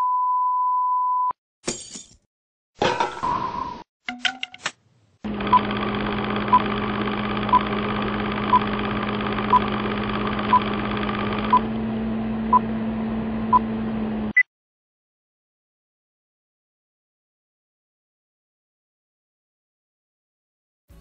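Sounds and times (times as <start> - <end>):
film projector whirr: 5.2 - 14.3.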